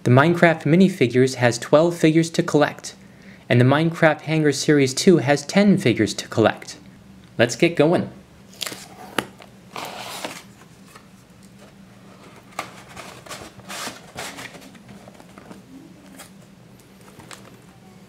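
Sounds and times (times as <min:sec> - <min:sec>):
cardboard rustling and scraping: 0:08.7 - 0:16.4.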